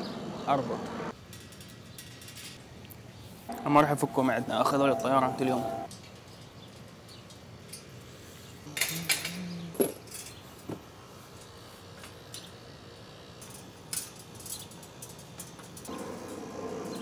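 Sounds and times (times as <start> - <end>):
metal clatter: 13.4 - 17.0
wire cage panels clinking: 13.4 - 17.0.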